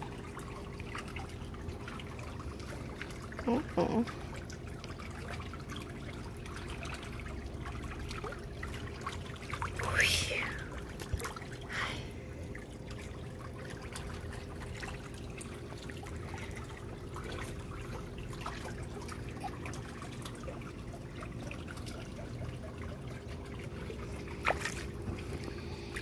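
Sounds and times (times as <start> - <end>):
pool water trickling and lapping: 0.0 - 26.0
steady low hum: 0.0 - 26.0.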